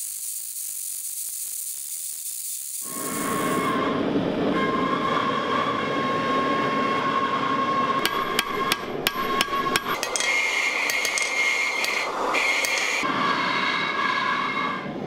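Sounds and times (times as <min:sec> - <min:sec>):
hammer striking steel on anvil: 0:08.0 - 0:13.0.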